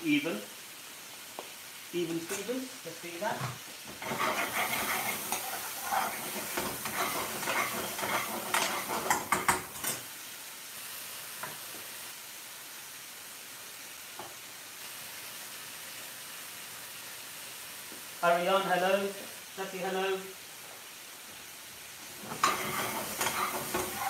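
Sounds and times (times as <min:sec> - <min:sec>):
food sizzling in a frying pan: 0:00.0 - 0:24.0
metal spoon scraping a pan: 0:04.0 - 0:10.0, 0:22.2 - 0:24.0
spoon knocking against pan: 0:06.6 - 0:10.0.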